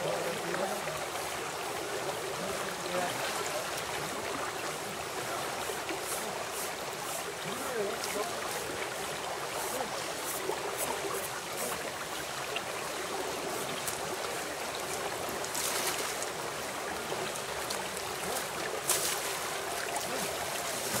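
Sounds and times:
river flowing: 0:00.0 - 0:21.0
water splashing: 0:05.0 - 0:21.0.

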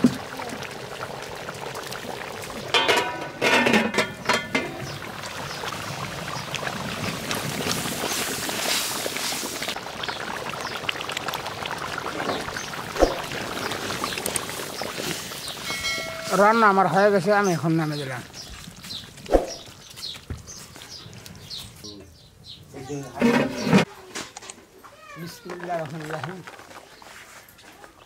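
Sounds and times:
curry simmering: 0:00.0 - 0:21.9
ringing metal knocks: 0:15.7 - 0:16.7.

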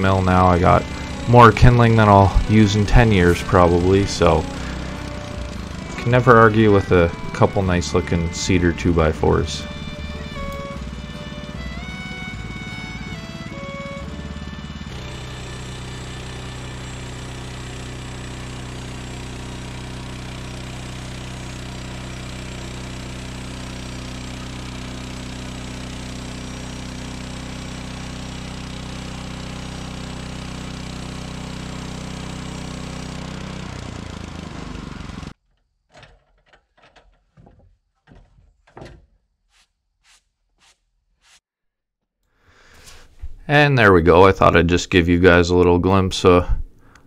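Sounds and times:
band sawmill cutting log: 0:00.0 - 0:35.4
engine low hum: 0:00.0 - 0:35.4.

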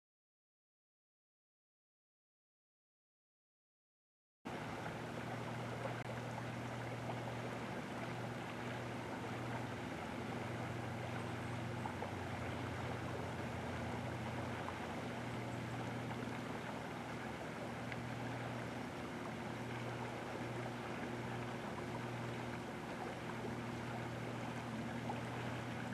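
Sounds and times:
low hum: 0:04.5 - 0:25.9
river water rushing: 0:04.5 - 0:25.9.

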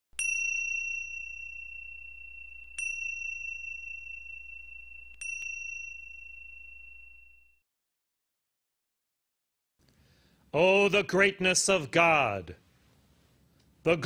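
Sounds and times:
high-pitched chime ringing: 0:00.2 - 0:07.6.

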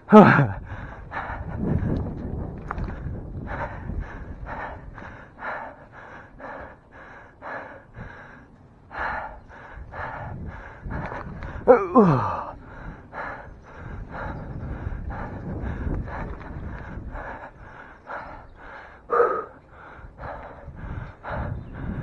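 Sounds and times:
person breathing hard: 0:00.1 - 0:02.0, 0:03.4 - 0:22.0.

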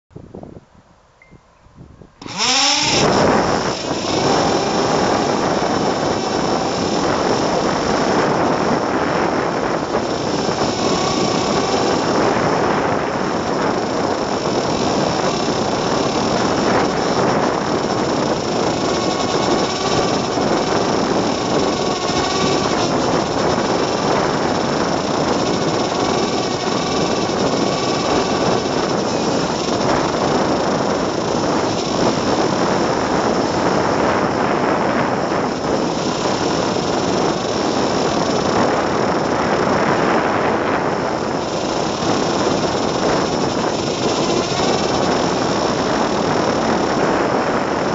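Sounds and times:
small electric motors buzzing: 0:02.2 - 0:47.9.

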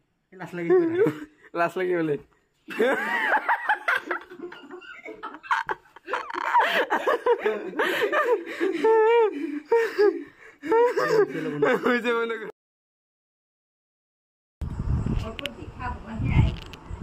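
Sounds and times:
man giggling and chuckling: 0:00.6 - 0:01.3, 0:02.7 - 0:12.3.

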